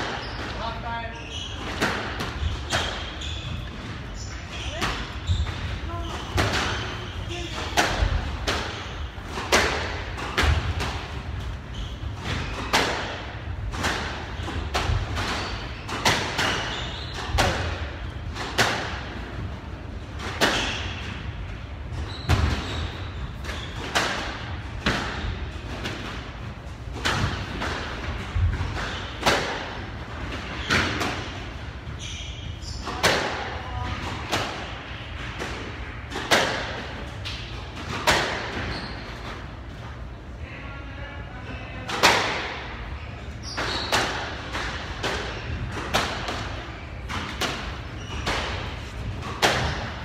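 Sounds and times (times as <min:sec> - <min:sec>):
racket hitting squash ball: 0:01.4 - 0:39.5, 0:41.9 - 0:42.8, 0:43.4 - 0:50.0
ball hitting court walls: 0:04.6 - 0:19.1, 0:32.9 - 0:39.0, 0:43.4 - 0:50.0.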